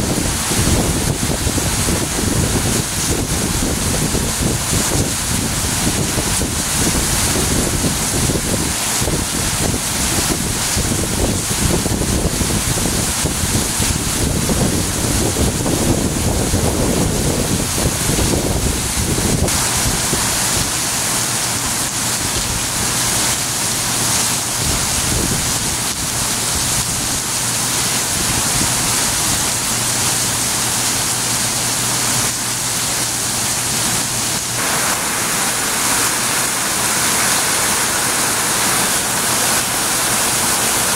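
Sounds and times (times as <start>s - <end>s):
wind buffeting microphone: 0.0s - 20.7s, 24.6s - 25.9s
heavy rain pouring: 0.0s - 40.9s
runoff water splashing: 0.0s - 40.9s.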